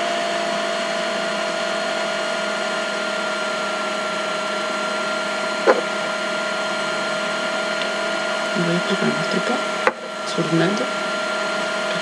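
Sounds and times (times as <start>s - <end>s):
whining tones: 2.6s - 12.0s
steady hum and hiss: 2.8s - 12.0s
short knock: 5.7s - 5.9s.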